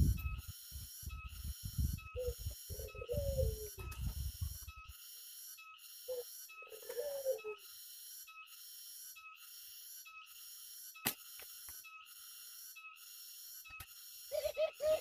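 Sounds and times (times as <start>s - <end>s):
doves cooing: 2.0s - 4.6s, 6.0s - 7.7s, 14.2s - 15.0s.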